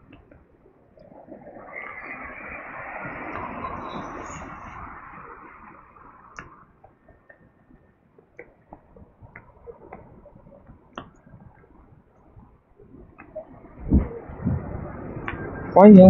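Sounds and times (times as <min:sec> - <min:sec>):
passing traffic: 0:00.2 - 0:07.6, 0:13.2 - 0:16.0
soft clicks and ticks: 0:06.3 - 0:12.4.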